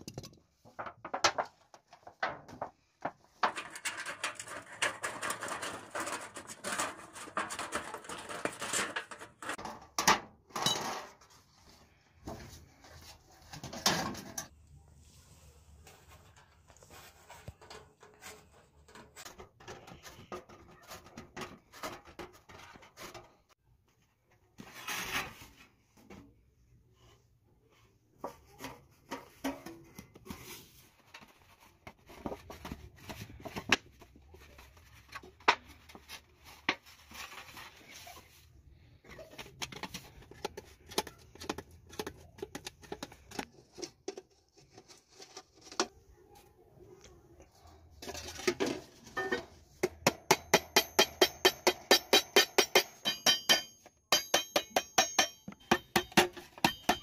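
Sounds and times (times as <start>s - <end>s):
tinplate clicking and crinkling: 0.0s - 9.9s.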